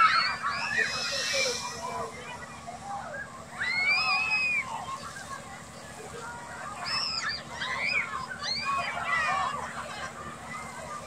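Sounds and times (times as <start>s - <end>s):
children shrieking and yelling: 0.0s - 2.1s, 3.5s - 5.3s, 6.6s - 10.8s
low steady hum: 0.3s - 3.1s
water spraying hiss: 0.6s - 2.3s.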